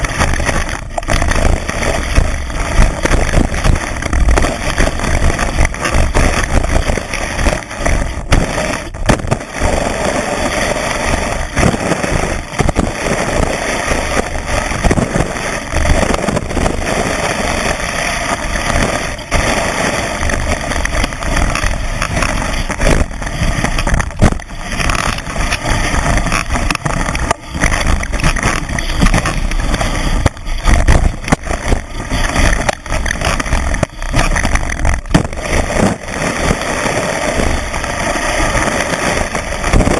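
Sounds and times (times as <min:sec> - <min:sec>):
ski bumps: 0:00.0 - 0:39.9
skis rushing through snow: 0:00.0 - 0:39.9
wind on microphone: 0:00.0 - 0:39.9.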